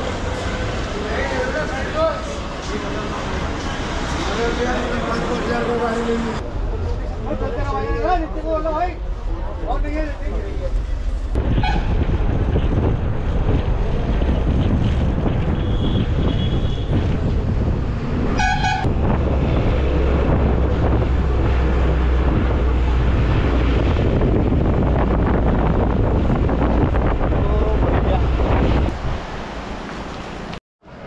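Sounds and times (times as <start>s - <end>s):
loud low rumble: 6.4s - 29.2s
wind buffeting microphone: 6.4s - 29.4s.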